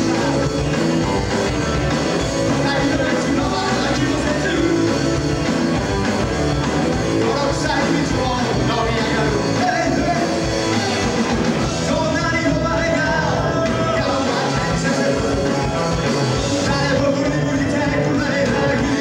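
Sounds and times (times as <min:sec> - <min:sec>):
person singing: 0:00.0 - 0:05.8, 0:07.0 - 0:19.0
electric guitar: 0:00.0 - 0:19.0
rock band playing live: 0:00.0 - 0:19.0.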